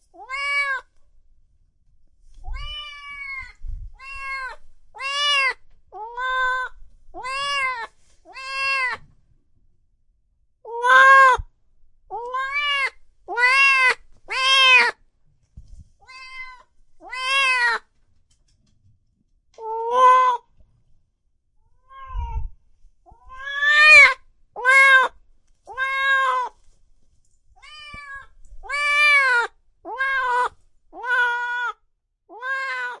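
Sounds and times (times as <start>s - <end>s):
cat meowing: 0.1s - 0.9s, 2.4s - 9.1s, 10.7s - 11.5s, 12.1s - 15.0s, 16.0s - 17.8s, 19.6s - 20.5s, 21.7s - 26.6s, 27.6s - 33.0s.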